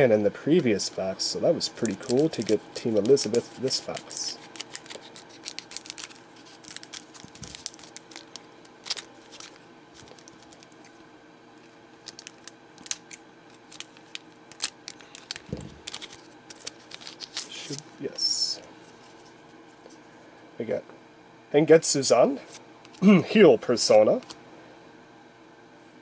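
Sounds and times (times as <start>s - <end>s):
wrapper crackling: 1.8s - 11.0s, 12.0s - 17.8s.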